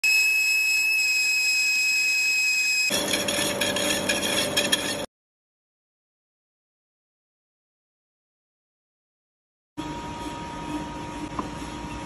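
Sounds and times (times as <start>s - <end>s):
saw cutting steel ring: 2.6s - 5.1s
lathe cutting tool squealing: 2.8s - 5.1s.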